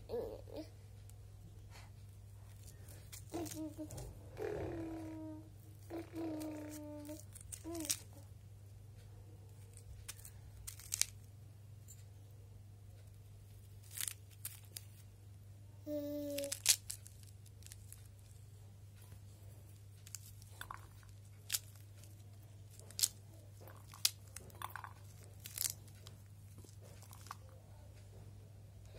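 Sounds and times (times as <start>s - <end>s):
fruit rind cracking and tearing: 6.3s - 8.2s, 10.0s - 11.3s, 13.8s - 15.0s, 16.4s - 18.2s, 20.0s - 26.1s.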